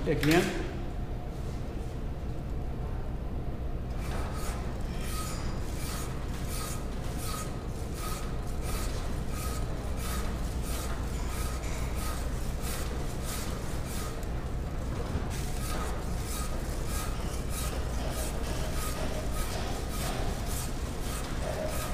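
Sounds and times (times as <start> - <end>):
rasp scraping plaster: 4.0 - 14.3, 15.2 - 21.9.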